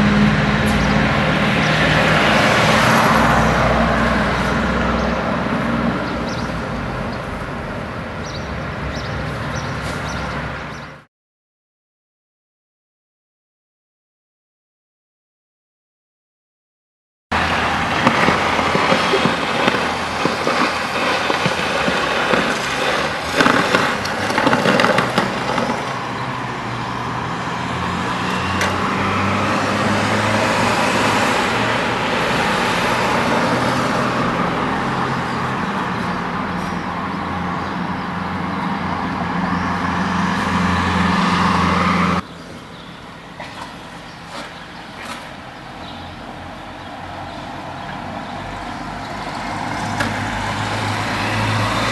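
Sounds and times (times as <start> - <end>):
street traffic noise: 0.0 - 11.1, 17.3 - 51.9
truck engine running: 17.4 - 26.6.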